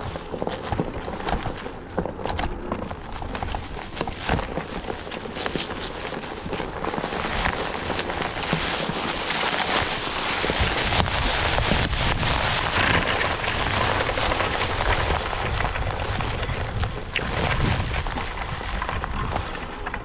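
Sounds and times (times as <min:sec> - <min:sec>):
tyres crunching over gravel track: 0:00.0 - 0:20.0.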